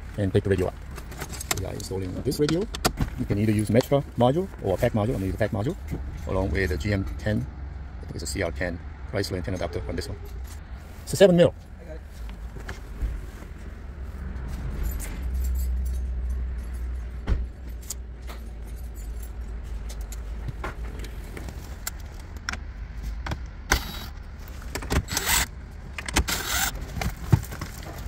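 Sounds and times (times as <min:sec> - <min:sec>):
clicks and rattles of tools: 0:00.9 - 0:04.0, 0:15.0 - 0:28.0
cordless drill driving screws: 0:23.7 - 0:24.1, 0:25.0 - 0:25.5, 0:26.2 - 0:26.8.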